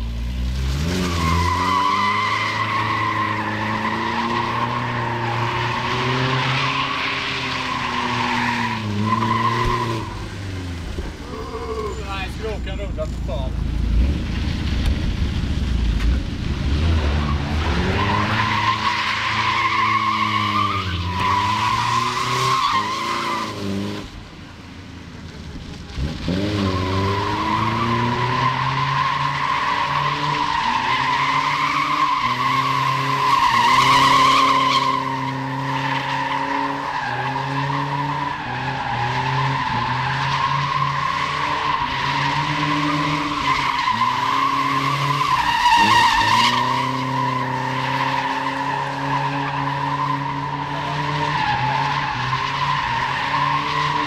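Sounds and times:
car engine revving: 0.0s - 54.0s
tyres squealing: 11.2s - 13.3s.

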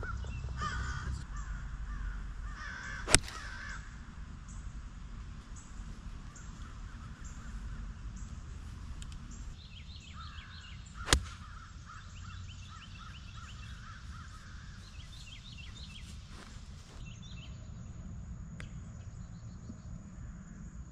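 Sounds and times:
birds chirping: 0.0s - 20.7s
golf club striking ball: 3.0s - 3.8s, 11.0s - 11.6s.

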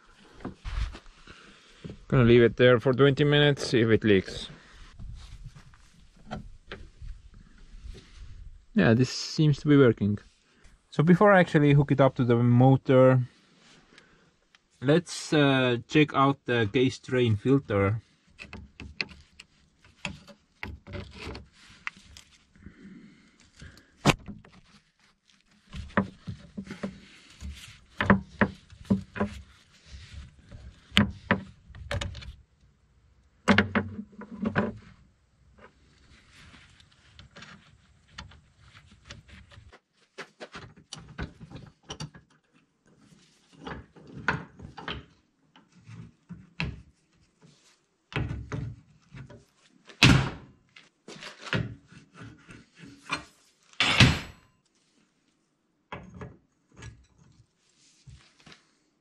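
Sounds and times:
hand tools clanking on metal: 53.8s - 54.5s.

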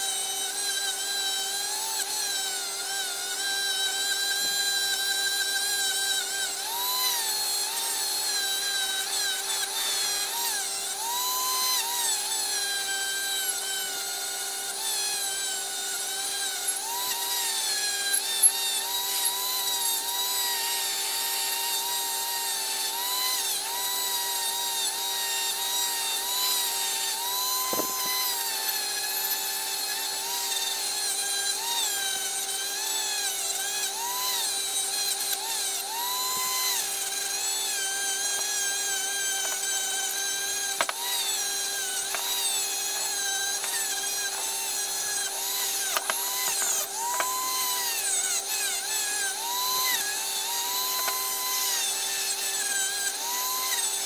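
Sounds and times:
rotary tool motor whine: 0.0s - 54.0s.

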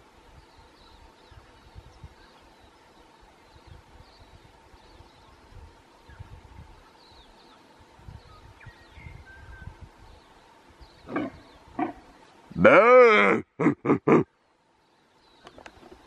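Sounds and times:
faint bird chirps: 0.2s - 12.6s
deer stag roaring: 12.6s - 13.4s
stag grunting: 12.6s - 14.2s.

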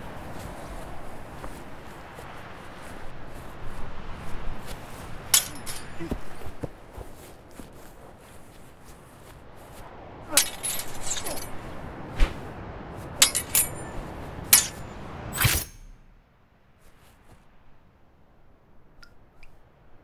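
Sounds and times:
steady rushing noise: 0.0s - 16.2s
steel swords clashing: 5.4s - 6.2s, 10.3s - 11.6s, 13.2s - 16.0s.

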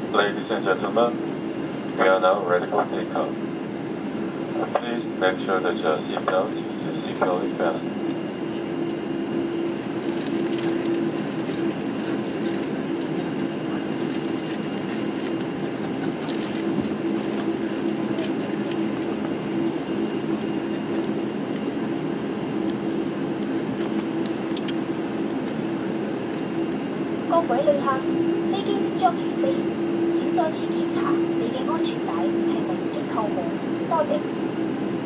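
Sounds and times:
jet engine hum in cabin: 0.0s - 35.0s.

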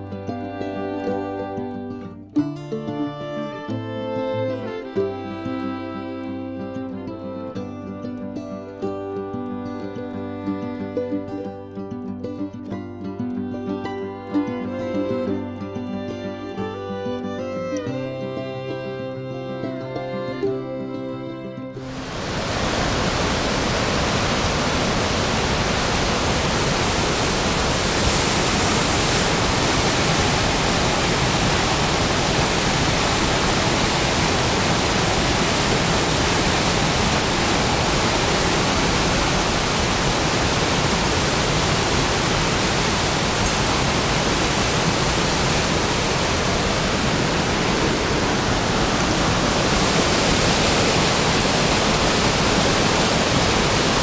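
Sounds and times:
stream cascading over rocks: 21.8s - 54.0s.

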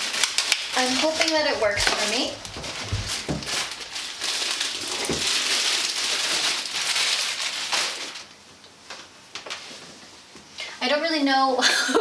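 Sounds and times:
plastic wrapping rustling: 0.0s - 10.2s.

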